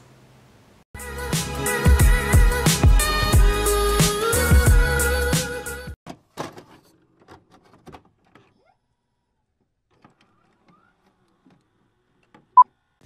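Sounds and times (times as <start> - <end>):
intro music: 1.0 - 5.8.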